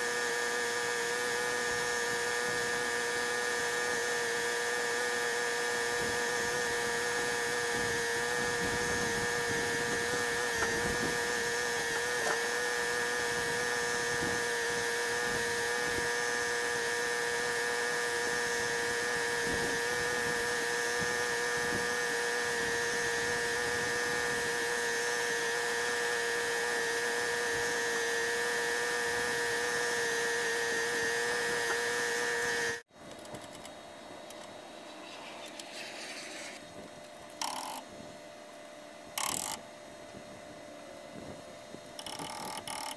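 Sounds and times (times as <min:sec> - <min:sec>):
power tool motor whining: 0:00.0 - 0:33.6, 0:34.2 - 0:38.0, 0:39.1 - 0:39.6, 0:42.0 - 0:42.9.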